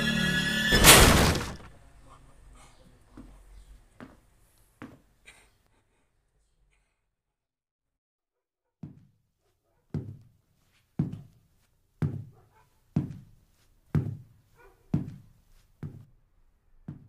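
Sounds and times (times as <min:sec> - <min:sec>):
heavy footsteps: 0:10.0 - 0:16.1.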